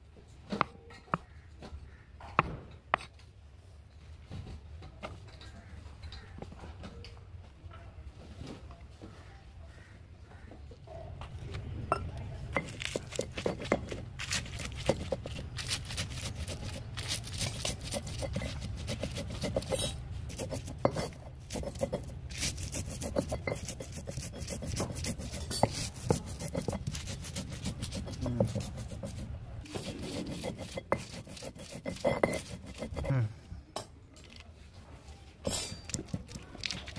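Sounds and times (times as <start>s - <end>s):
stone grinding on stone slab: 11.9s - 33.2s, 35.4s - 36.9s
spices crunching: 12.5s - 33.1s, 35.5s - 36.9s.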